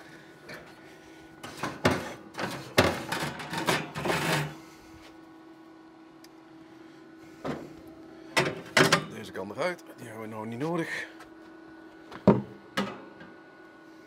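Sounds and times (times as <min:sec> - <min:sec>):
grill humming: 0:00.0 - 0:14.0
grill brush scraping grates: 0:01.4 - 0:04.8.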